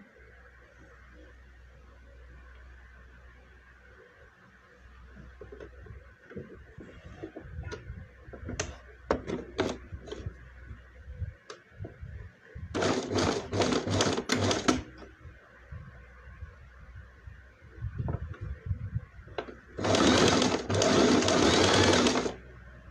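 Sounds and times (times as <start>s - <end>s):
sewing machine stitching: 12.8s - 14.9s, 19.8s - 22.4s.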